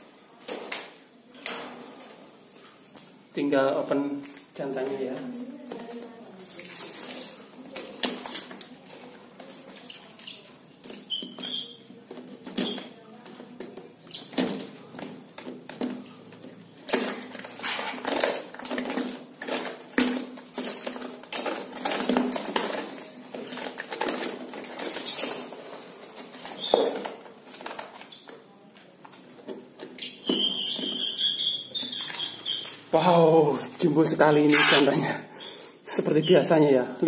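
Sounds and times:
tape tearing: 16.8 - 28.1.

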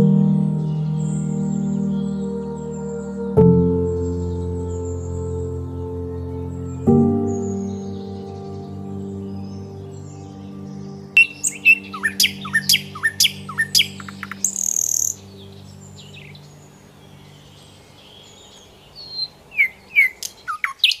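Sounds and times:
small birds chirping: 3.8 - 21.0
harsh bird call: 11.2 - 21.0.

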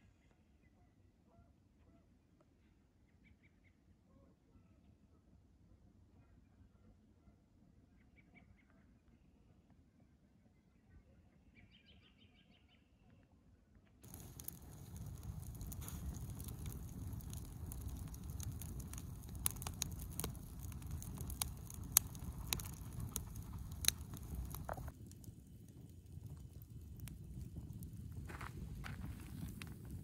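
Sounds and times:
campfire crackling and popping: 14.0 - 30.0
low steady fire noise: 14.0 - 30.0.

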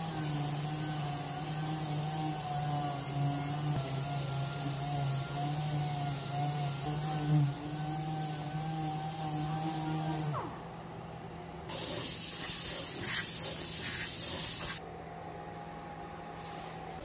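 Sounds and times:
compressed air blast: 11.7 - 14.8.

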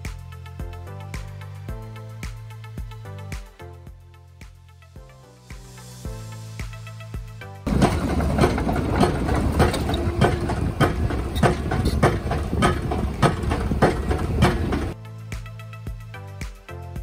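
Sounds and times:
diesel engine rumble: 7.7 - 15.0
pile hammer blows: 7.7 - 15.0.

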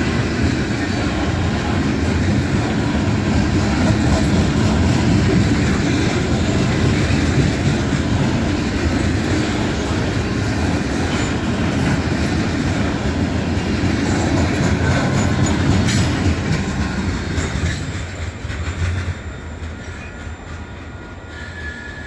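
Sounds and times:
freight train rumbling and clattering: 0.0 - 22.0
high wheel squeal: 19.4 - 22.0.

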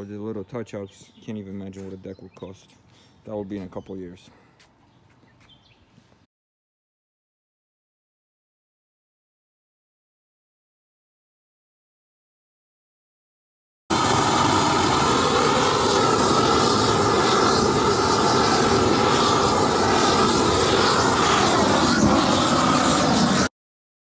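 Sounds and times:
propane torch flame rushing: 13.9 - 23.5.

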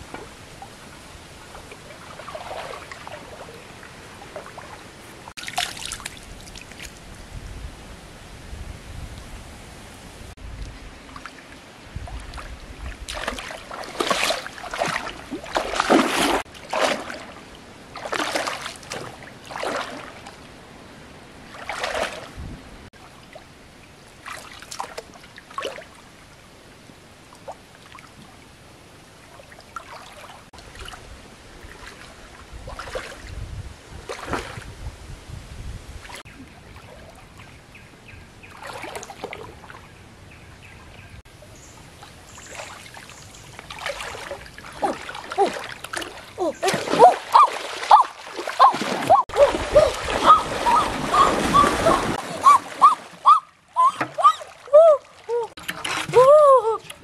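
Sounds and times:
water splashing from wading: 0.0 - 7.0, 10.7 - 20.5, 21.4 - 26.2, 29.2 - 33.4, 34.0 - 34.8, 38.4 - 39.9, 42.0 - 57.0
steady stream wash: 0.0 - 37.4, 41.3 - 57.0.

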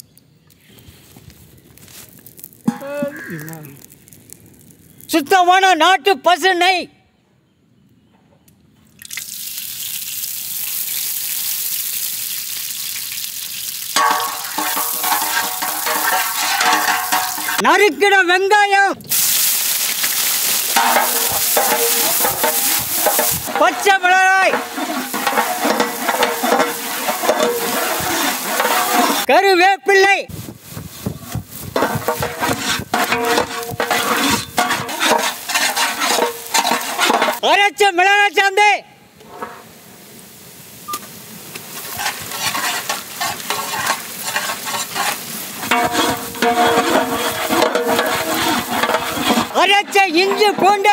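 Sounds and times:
ghee sizzling in a hot pot: 0.9 - 5.2, 9.0 - 17.6, 19.0 - 29.4, 30.3 - 37.4, 39.6 - 50.9
ladle scraping metal pan: 14.0 - 17.6, 20.1 - 29.3, 31.2 - 37.4, 41.8 - 50.9.

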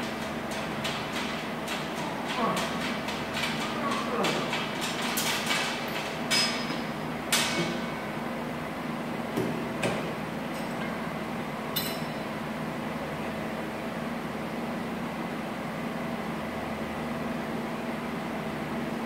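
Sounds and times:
weight stack clanking: 0.0 - 7.9.

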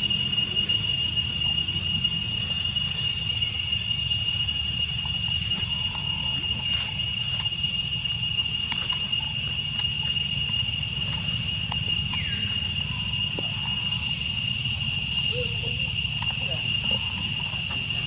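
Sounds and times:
insects droning: 0.0 - 18.0.

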